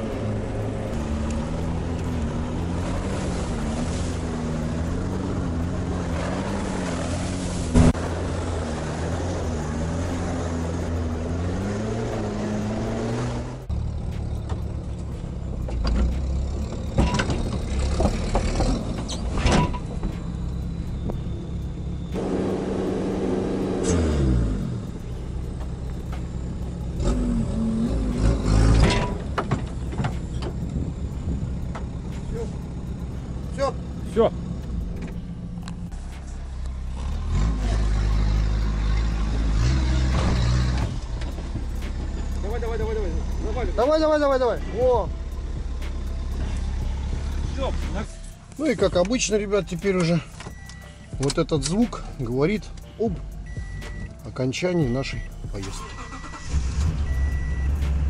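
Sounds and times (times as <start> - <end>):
diesel engine running under load: 7.1 - 58.0
knocks and clatter: 28.7 - 30.8.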